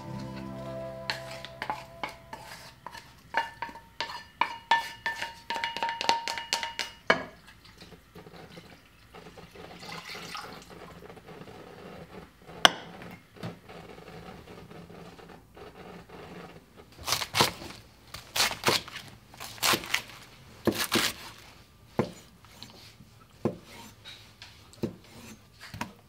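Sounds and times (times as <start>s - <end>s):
pan ringing from taps: 0.0s - 2.7s
spatula scraping frying pan: 0.0s - 5.4s
water pouring into pot: 9.4s - 10.8s.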